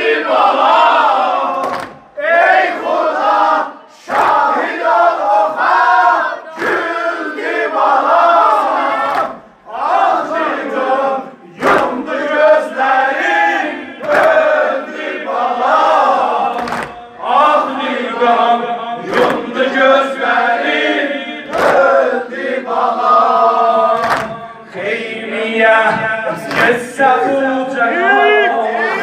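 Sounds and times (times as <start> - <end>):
crowd of men chanting: 0.0 - 29.0
collective chest slaps: 1.6 - 2.0, 16.6 - 17.0, 24.0 - 24.4.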